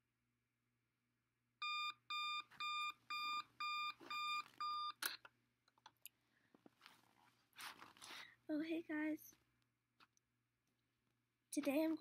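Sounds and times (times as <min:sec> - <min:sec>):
electronic alarm beeping: 0:01.6 - 0:05.0.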